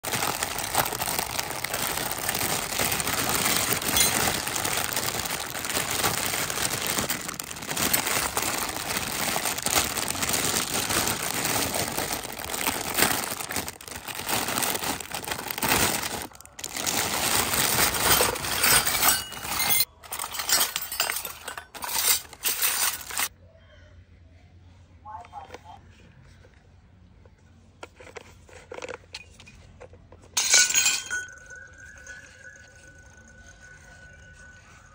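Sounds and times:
plastic bag crinkling: 0.0s - 23.3s, 31.0s - 34.9s
small utensils clinking: 0.1s - 23.3s, 30.4s - 34.3s.

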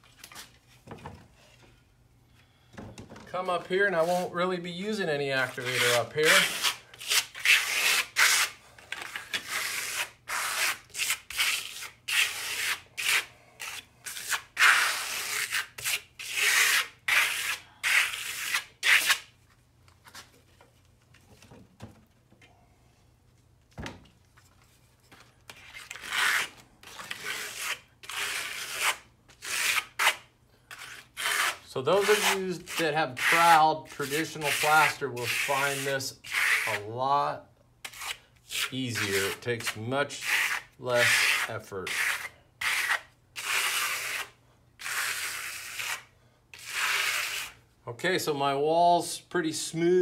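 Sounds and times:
trowel scraping wet plaster: 5.4s - 19.3s, 25.5s - 36.9s, 37.8s - 47.6s.

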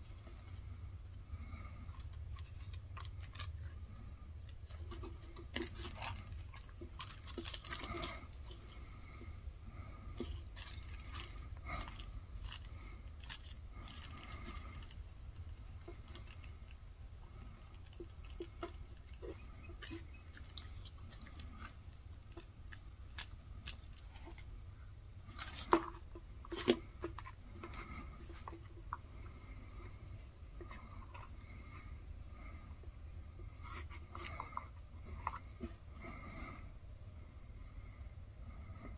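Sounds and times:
thread rustling through leather: 10.1s - 24.5s.

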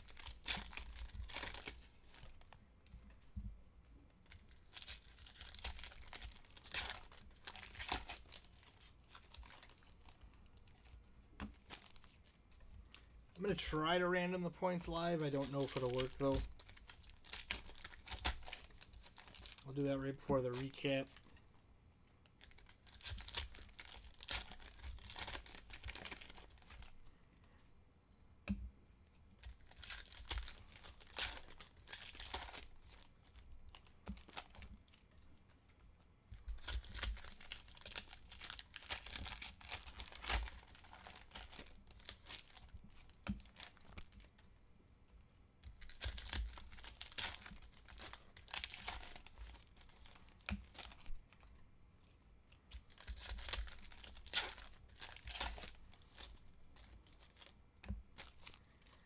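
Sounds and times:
card pack wrappers tearing: 0.0s - 2.4s, 4.4s - 10.2s, 13.4s - 21.2s, 22.4s - 27.0s, 29.4s - 34.8s, 36.6s - 44.3s, 45.8s - 51.1s, 52.9s - 59.0s.

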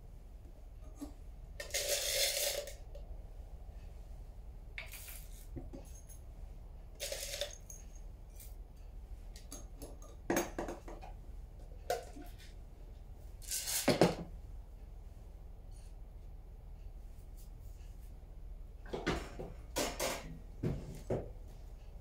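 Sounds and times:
coffee beans rattling: 1.6s - 2.9s, 4.8s - 5.5s, 7.0s - 7.8s, 13.4s - 14.0s.

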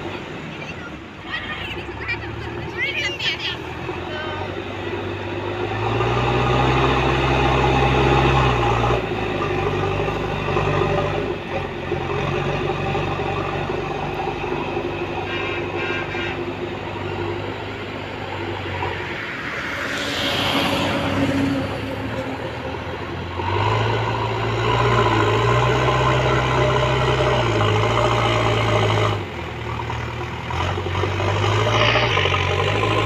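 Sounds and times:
diesel engine working under load: 0.0s - 33.0s.

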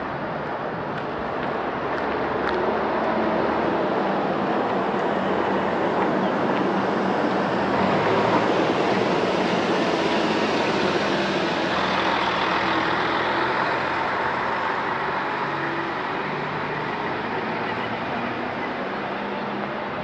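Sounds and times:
vehicle engine and tyres humming: 0.0s - 20.0s.

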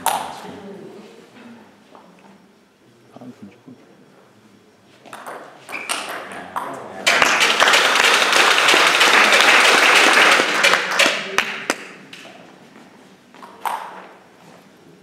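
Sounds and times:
spectators applauding: 7.0s - 12.0s.

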